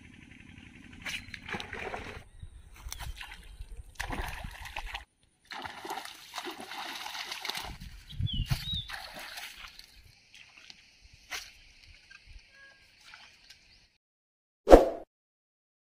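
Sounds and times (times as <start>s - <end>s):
water splashing: 1.4s - 2.2s, 2.8s - 7.9s, 8.6s - 10.8s.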